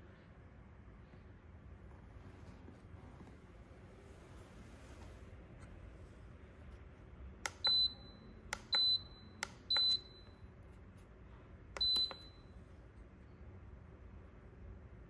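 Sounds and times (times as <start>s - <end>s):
button clicks: 7.4s - 10.3s, 11.8s - 12.4s.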